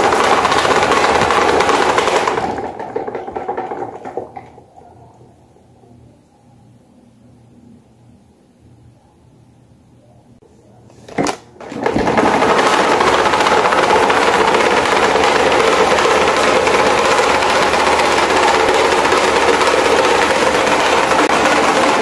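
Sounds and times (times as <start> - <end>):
desk fan whirring: 0.0 - 22.0.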